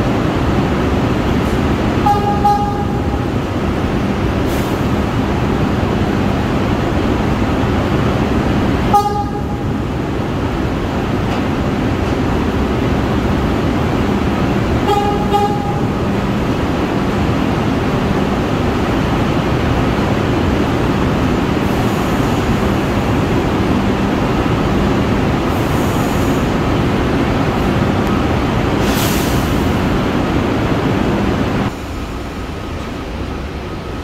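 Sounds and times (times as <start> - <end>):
subway train rumbling: 0.0 - 34.0
train horn toot: 2.0 - 3.2, 8.9 - 9.6, 14.8 - 16.1.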